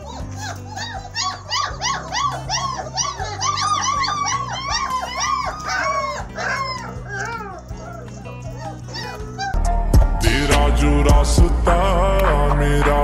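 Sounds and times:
puppies whining and yelping: 0.0s - 9.6s
background music: 0.0s - 13.0s.

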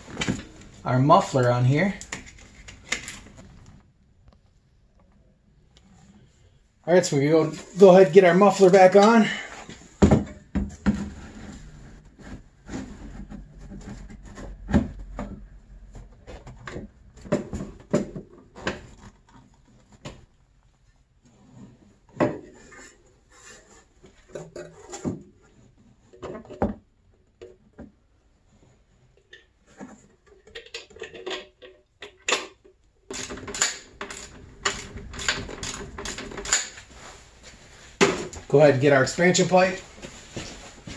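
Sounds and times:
metal clunking and scraping: 33.1s - 38.4s.

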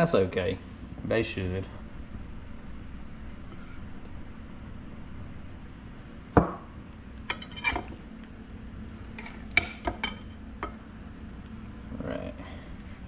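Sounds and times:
faint steady hum: 0.0s - 13.0s
dishes and utensils clinking: 7.3s - 8.0s, 9.2s - 10.8s.

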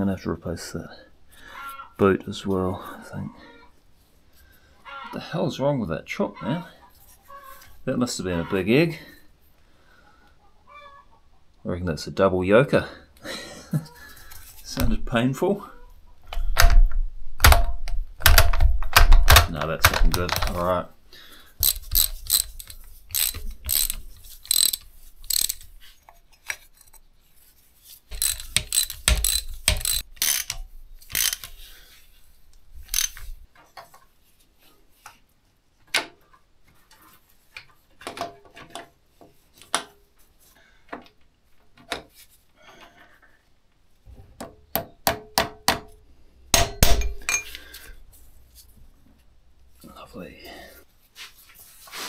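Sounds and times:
metallic clicks and knocks from tools: 21.6s - 27.0s, 28.1s - 31.6s, 32.9s - 33.3s.

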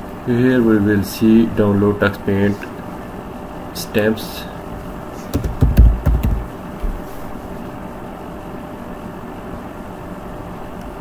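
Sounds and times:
low background hum: 0.0s - 11.0s
computer keyboard keystrokes: 5.4s - 6.5s.

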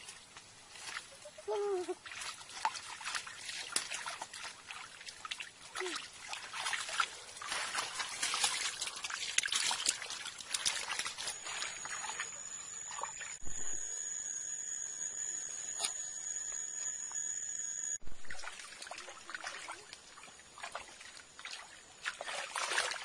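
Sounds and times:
hands splashing in muddy water: 2.0s - 13.2s, 18.2s - 23.0s
high-pitched whine: 10.6s - 18.5s.

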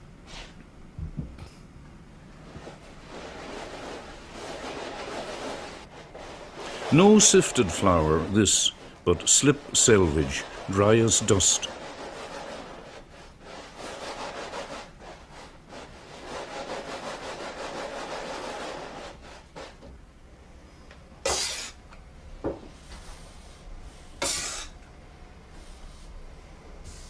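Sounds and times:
clay rubbed through a sieve: 2.4s - 19.8s, 25.5s - 26.2s
sharp scrapes: 3.1s - 14.9s.

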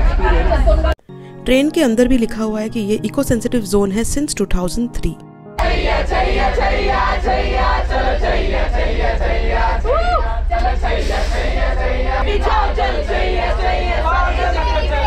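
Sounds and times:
group singing and chanting: 5.6s - 15.0s
low rumble: 5.6s - 15.0s
person whooping: 9.8s - 10.4s.

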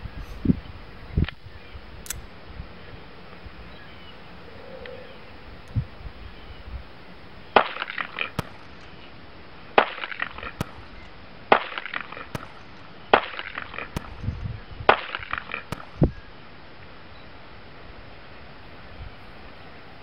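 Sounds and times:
pistol shots with ringing echo: 7.4s - 16.2s.

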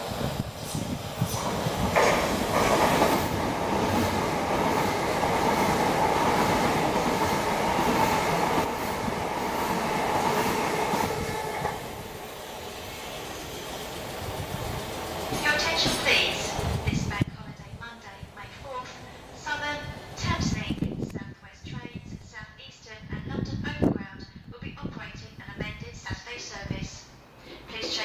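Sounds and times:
electric train passing: 0.0s - 20.8s.

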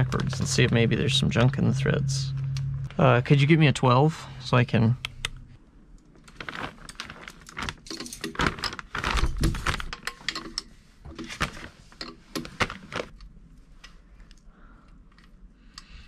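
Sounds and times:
plastic bag rustling: 6.2s - 10.0s, 11.1s - 13.1s.

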